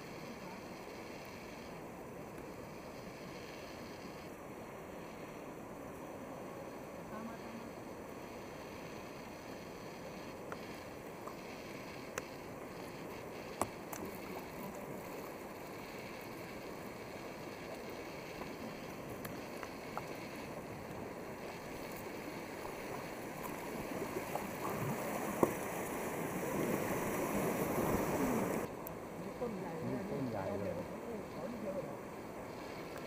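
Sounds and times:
paddle blades dipping: 10.4s - 28.8s
water sloshing against hull: 18.4s - 28.7s.

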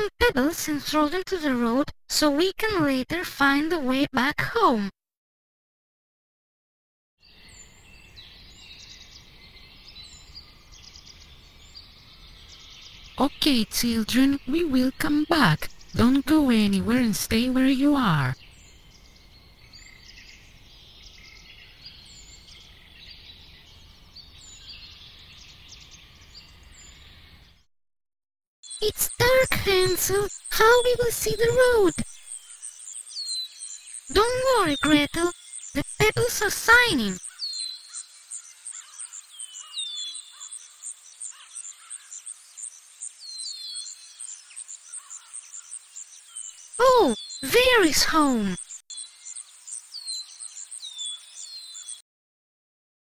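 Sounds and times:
high bird chirps: 28.6s - 52.0s.

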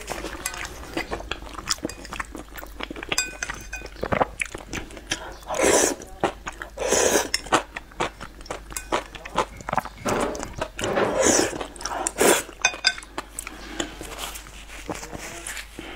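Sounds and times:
noodles slurped: 0.0s - 12.6s
wet chewing: 0.0s - 15.9s
chopsticks clinking on ceramic bowl: 0.1s - 4.2s, 7.2s - 11.4s, 12.6s - 13.2s.

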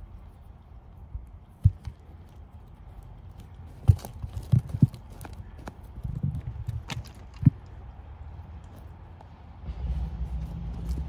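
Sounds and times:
dull thumps: 1.5s - 2.1s.

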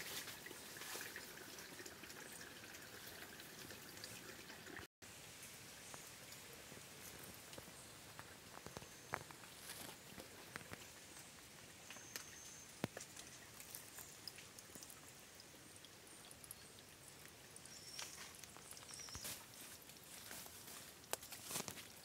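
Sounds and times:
faint ticks and crackles: 5.2s - 22.0s.

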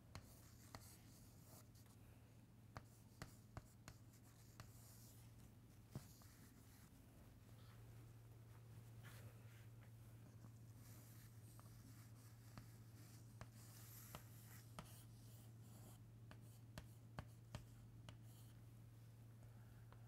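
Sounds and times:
chalk tapping on chalkboard: 2.8s - 5.0s, 15.8s - 18.5s
chalk scratching on chalkboard: 10.8s - 18.6s.

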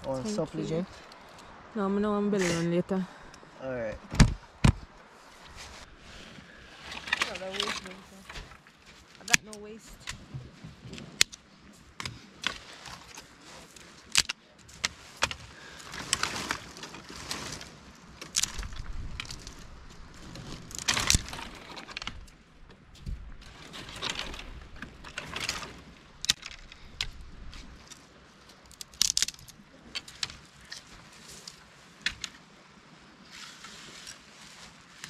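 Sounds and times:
brittle twigs rustling: 5.4s - 9.5s, 12.4s - 32.4s
dry branches snapping: 11.2s - 11.4s, 13.8s - 22.4s, 23.0s - 28.0s, 28.6s - 32.4s.

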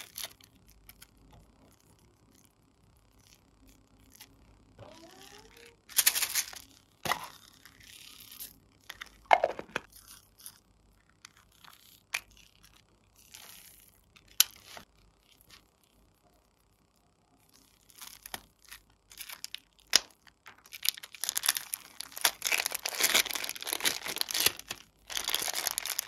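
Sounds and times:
crinkly plastic rustles: 5.9s - 15.7s, 17.5s - 26.0s.

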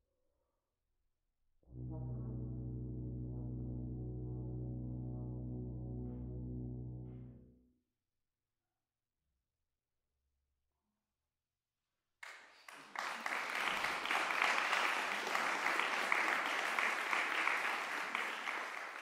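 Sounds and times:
audience applause: 12.2s - 19.0s.

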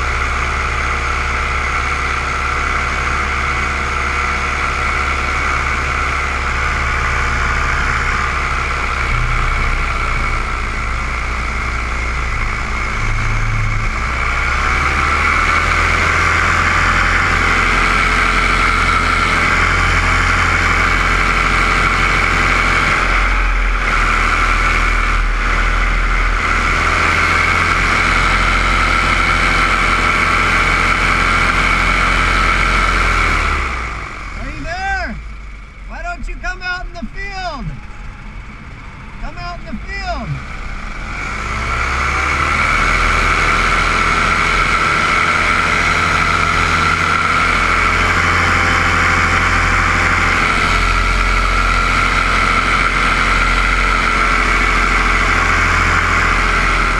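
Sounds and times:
paramotor engine and propeller: 0.0s - 56.9s.

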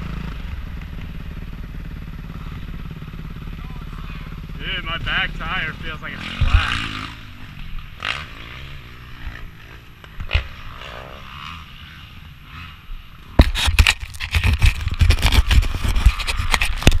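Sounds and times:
camera handling scraping and knocking: 13.4s - 17.0s.

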